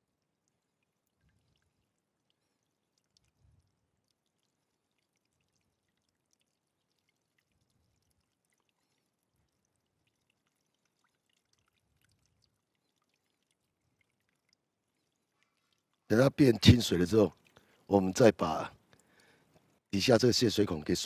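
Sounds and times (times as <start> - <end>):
water trickling and dripping: 0.0 - 21.0.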